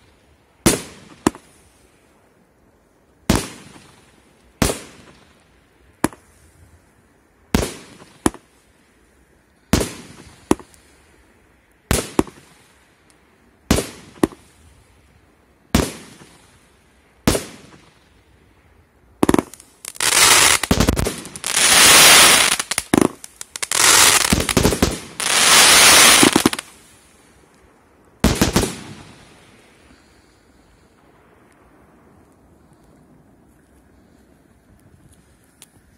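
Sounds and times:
rapid firework volley: 15.7s - 16.6s, 19.2s - 27.0s, 28.2s - 30.3s
firework bangs: 19.2s - 26.8s, 28.2s - 29.4s.

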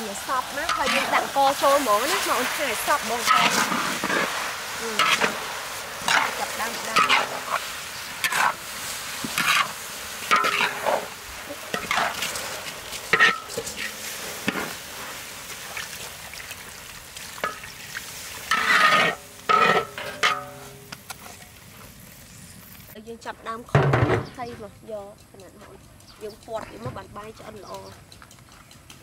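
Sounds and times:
frying sizzle: 0.0s - 25.6s
metal spatula scraping a wok: 0.1s - 16.6s, 17.3s - 22.6s.

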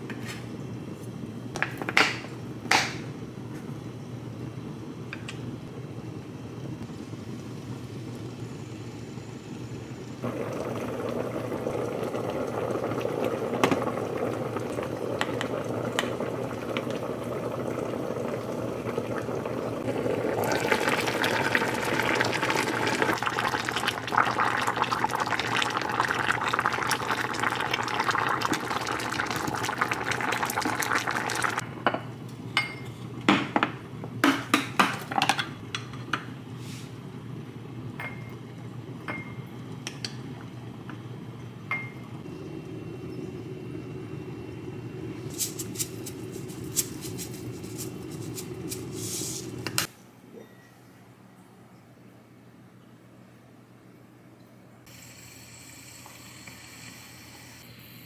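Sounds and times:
pot simmering and bubbling: 10.1s - 33.2s, 36.9s - 49.9s
dishes clinking: 31.8s - 33.7s, 38.0s - 38.4s, 39.1s - 40.2s, 50.3s - 50.9s.

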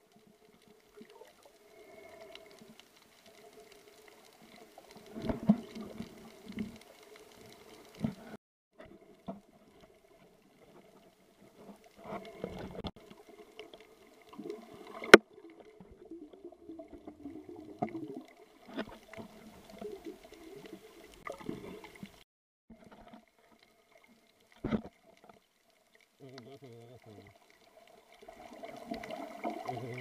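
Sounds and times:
underwater gurgles: 0.0s - 30.0s.

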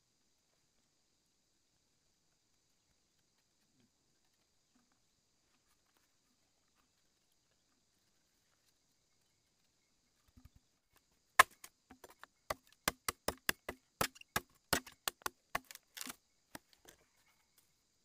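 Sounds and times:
machete chopping bamboo: 11.4s - 16.7s.

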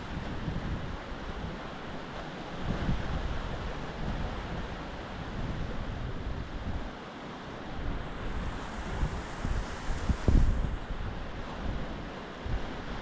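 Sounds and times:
wind gusting on microphone: 0.0s - 13.0s.

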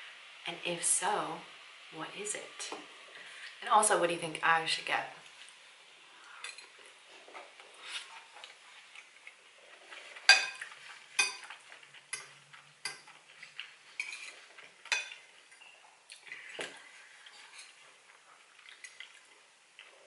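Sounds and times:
fork scraping plate: 9.8s - 15.8s, 17.2s - 17.8s
fork clinking against plate: 10.2s - 15.8s.

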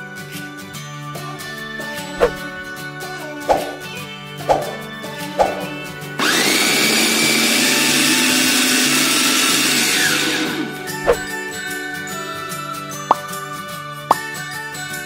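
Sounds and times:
blender motor grinding bread: 6.2s - 10.2s.

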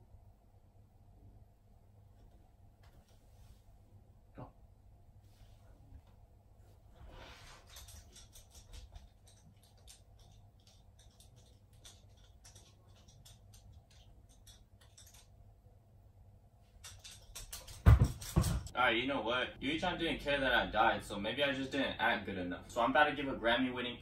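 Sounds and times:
dog claws clicking on wooden floor: 7.6s - 15.3s, 16.8s - 18.7s.

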